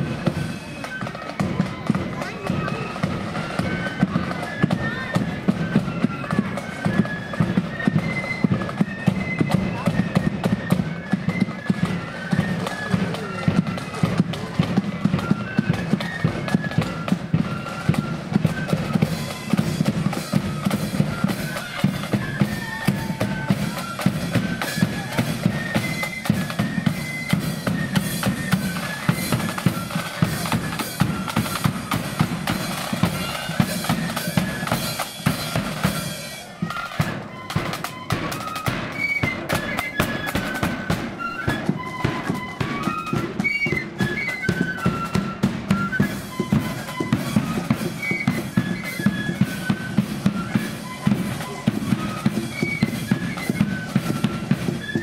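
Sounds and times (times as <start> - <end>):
flutes playing melody: 0.0 - 55.0
snare drums: 0.0 - 55.0.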